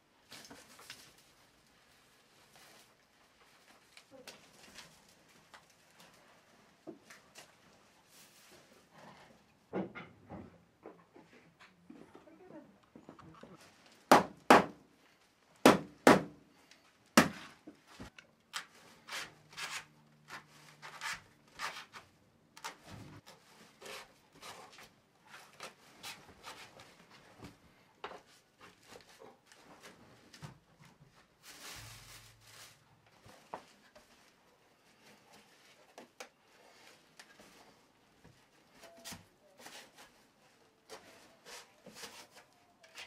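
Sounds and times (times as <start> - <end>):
dry straw rustling: 31.4 - 32.9.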